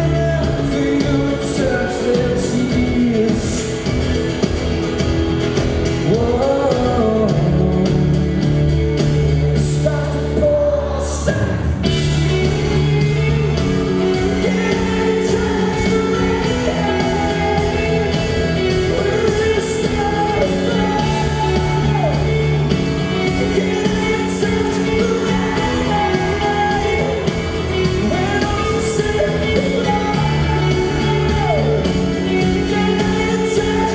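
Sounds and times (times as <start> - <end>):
man singing: 0.0 - 4.5, 5.8 - 33.9
strummed acoustic guitar: 0.0 - 11.2, 11.8 - 33.9
pop-rock band playing live: 0.0 - 33.9.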